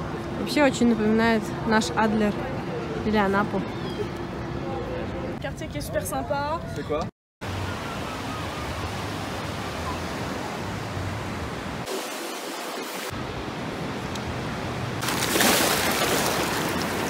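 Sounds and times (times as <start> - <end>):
ocean surf on beach: 7.4 - 17.0
waves washing around feet: 14.6 - 17.0.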